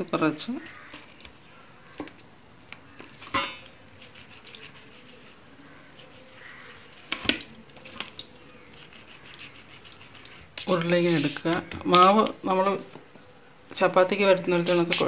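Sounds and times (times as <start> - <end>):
dough being kneaded by hand: 2.8 - 13.0, 14.5 - 15.0.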